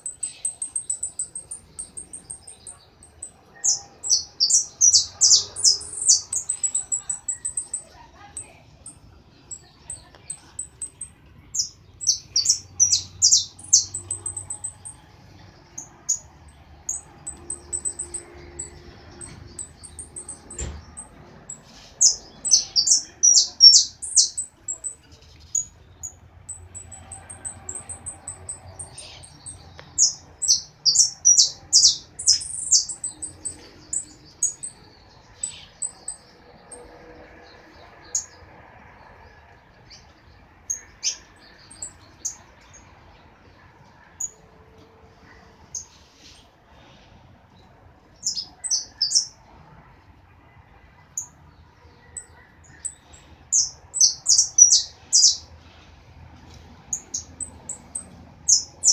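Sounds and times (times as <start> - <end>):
thin high bird chirps: 0.0 - 15.0, 15.7 - 34.8
songbird singing: 0.0 - 46.5, 47.7 - 49.5, 52.1 - 55.8, 56.4 - 58.9.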